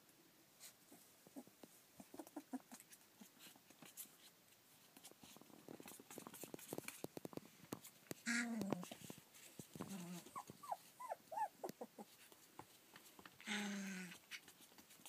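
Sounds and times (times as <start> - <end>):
puppies scuffling and clicking: 1.2 - 13.5, 14.1 - 15.0
puppy squeaks and grunts: 9.8 - 12.2.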